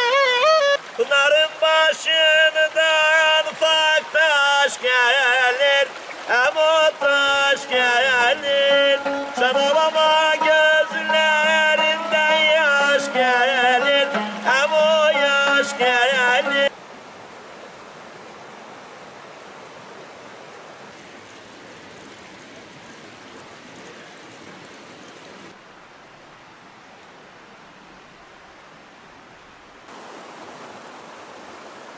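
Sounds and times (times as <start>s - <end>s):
man singing: 0.0s - 16.7s
stream rushing over rocks: 0.0s - 31.9s
plucked lute: 6.9s - 16.7s.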